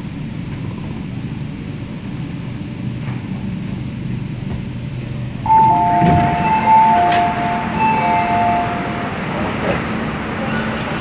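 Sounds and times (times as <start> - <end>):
train interior hum: 0.0 - 11.0
two-tone door chime beeps: 5.5 - 9.8.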